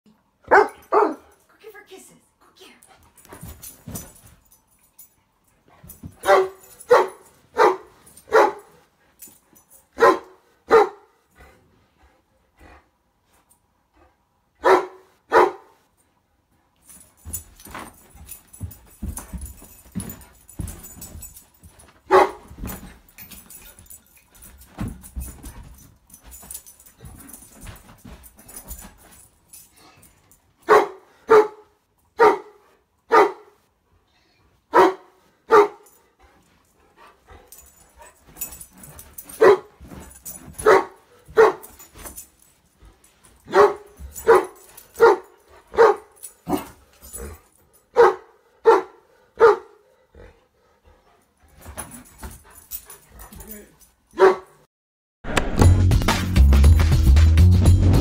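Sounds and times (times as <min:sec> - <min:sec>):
puppy barking: 0:00.5 - 0:01.3, 0:06.2 - 0:08.8, 0:10.0 - 0:11.2, 0:14.6 - 0:15.8, 0:22.1 - 0:22.4, 0:30.6 - 0:33.6, 0:34.7 - 0:35.9, 0:39.4 - 0:39.7, 0:40.6 - 0:41.7, 0:43.5 - 0:46.6, 0:47.9 - 0:49.8, 0:54.2 - 0:54.7.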